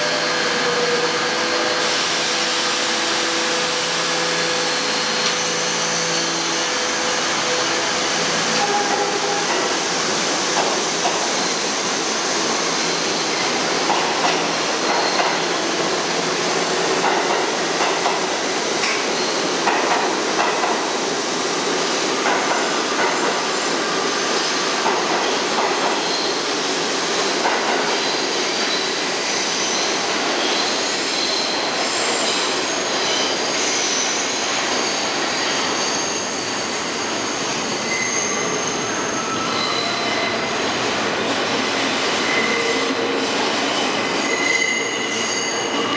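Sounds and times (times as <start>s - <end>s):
subway train rumbling: 0.0s - 45.9s
high wheel squeal: 28.0s - 40.7s, 42.2s - 45.9s.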